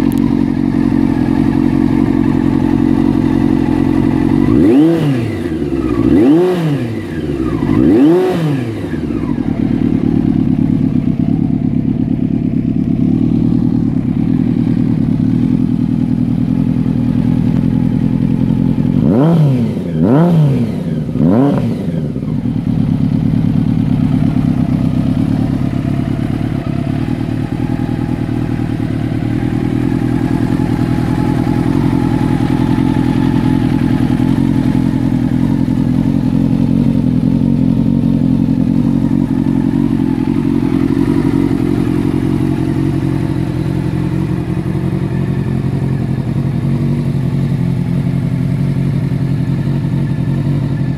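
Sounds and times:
motorcycle engine idling and revving: 0.0s - 50.9s.

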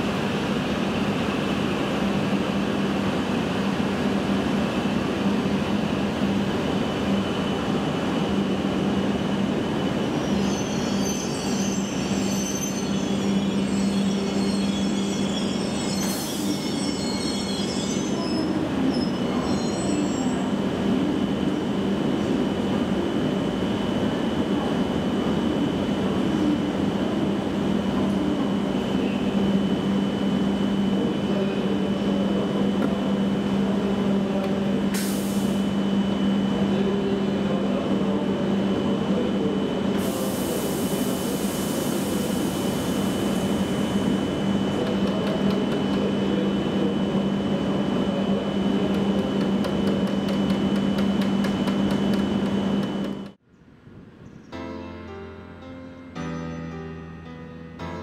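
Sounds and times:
train hum and whine: 0.0s - 58.0s
air hiss: 40.0s - 43.8s.

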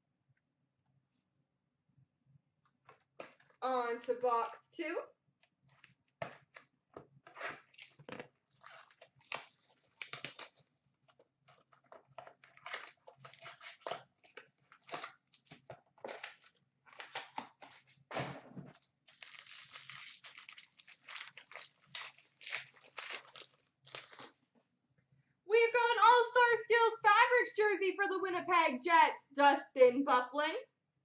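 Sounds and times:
plastic wrapping crinkling and tearing: 7.2s - 18.0s, 18.7s - 24.4s.

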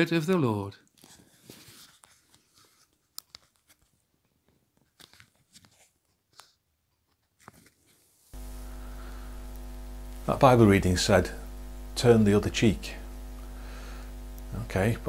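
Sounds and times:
electrical mains hum: 8.3s - 15.0s.

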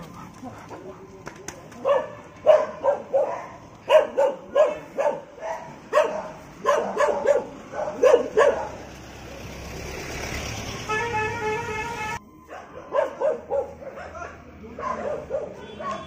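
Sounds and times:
dog barking: 1.8s - 9.0s, 12.5s - 16.0s.

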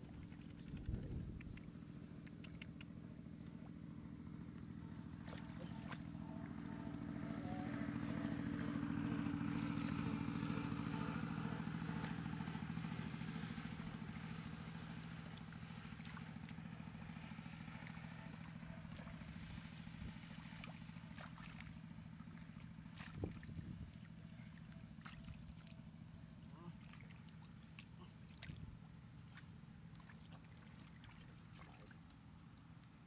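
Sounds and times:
small engine running: 0.0s - 32.9s
hands slapping wet mud: 13.6s - 19.2s, 20.4s - 24.1s.

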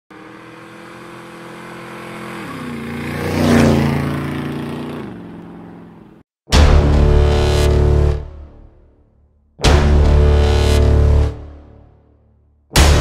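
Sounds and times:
motorcycle passing by: 0.1s - 6.2s
loud music hit: 6.5s - 8.8s, 9.6s - 11.8s, 12.8s - 13.0s.

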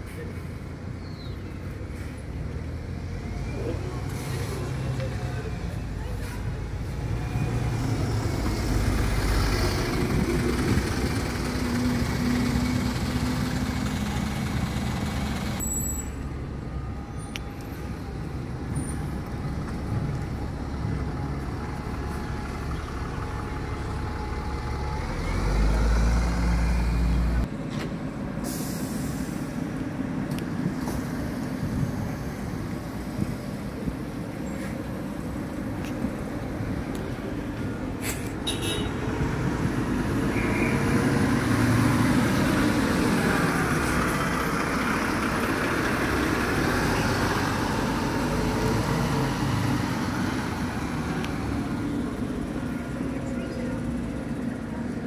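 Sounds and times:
bus engine running: 0.0s - 55.0s
buses idling: 0.0s - 55.0s
air brake hiss: 28.4s - 29.5s.

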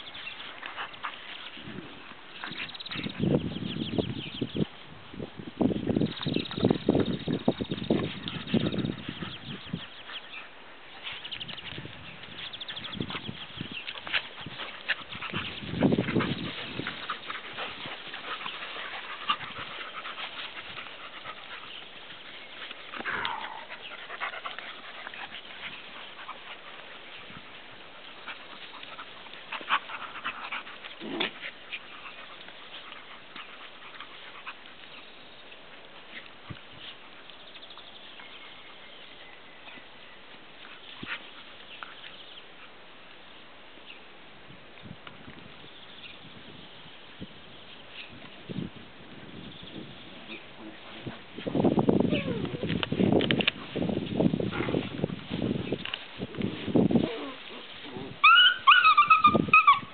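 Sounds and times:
dog vocalisations: 52.1s - 52.7s
dog whining: 52.1s - 52.7s, 58.2s - 59.9s.

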